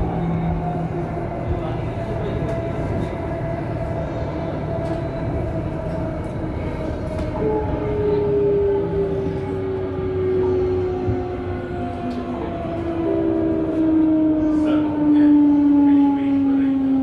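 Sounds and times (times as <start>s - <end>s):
lower whine: 0.0s - 17.0s
train rumble: 0.0s - 17.0s.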